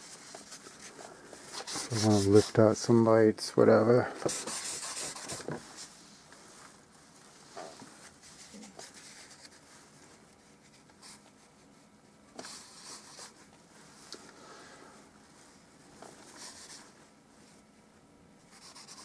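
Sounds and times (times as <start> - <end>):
paper towel rubbing on canvas: 1.5 - 2.6, 4.3 - 5.9.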